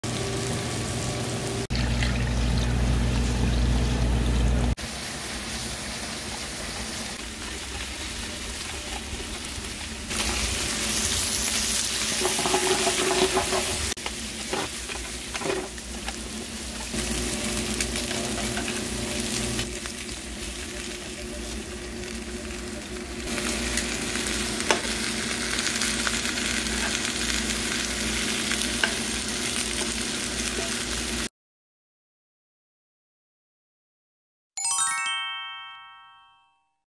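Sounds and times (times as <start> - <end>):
meat sizzling in a pan: 4.8 - 31.3.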